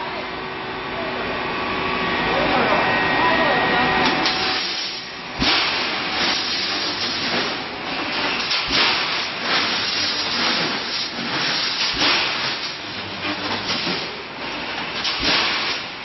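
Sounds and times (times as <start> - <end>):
welding machine hissing: 4.1 - 16.0.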